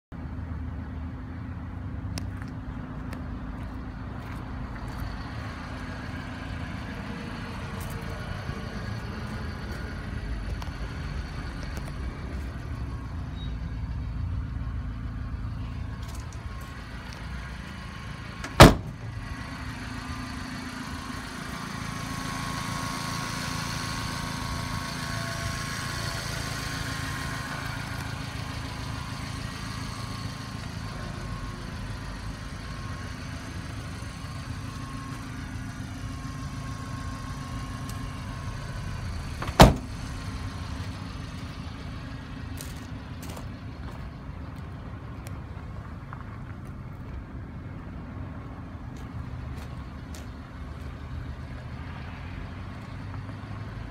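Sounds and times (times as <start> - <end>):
truck engine idling: 0.2 - 53.9
sharp slams: 18.4 - 19.0, 39.4 - 40.0.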